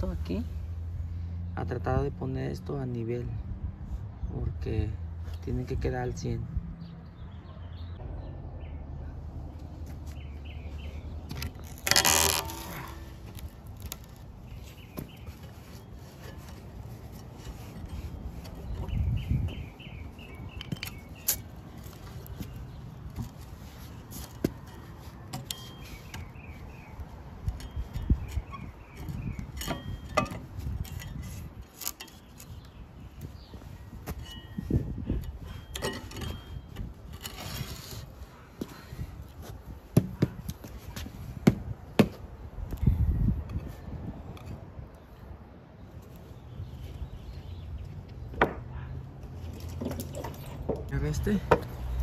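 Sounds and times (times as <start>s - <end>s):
small birds chirping: 5.2s - 11.8s, 13.4s - 36.8s, 42.8s - 48.9s
wood knocking against metal: 48.3s - 48.7s.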